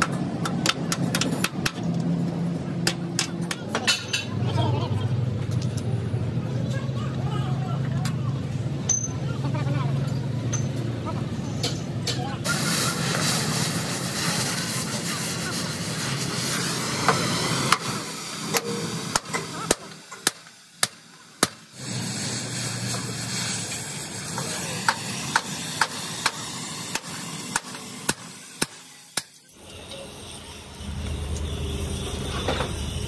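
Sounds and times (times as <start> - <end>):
hammer striking steel: 0.0 - 1.9, 2.8 - 4.3, 24.4 - 29.6.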